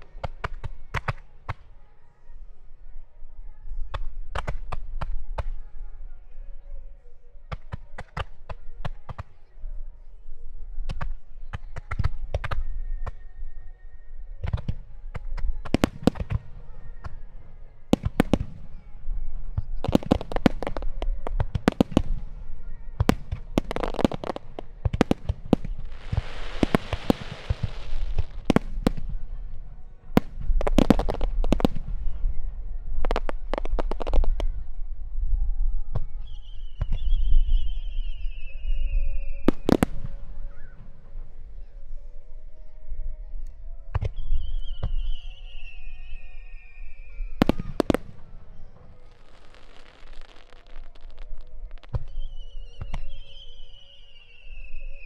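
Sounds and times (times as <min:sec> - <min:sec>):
fireworks hissing crackle: 0:19.7 - 0:29.6, 0:46.5 - 0:55.0
fireworks booming: 0:23.0 - 0:29.6.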